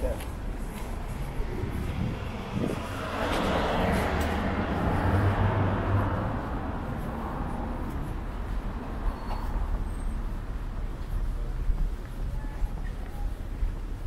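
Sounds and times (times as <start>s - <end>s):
vehicle passing: 0.5s - 10.3s.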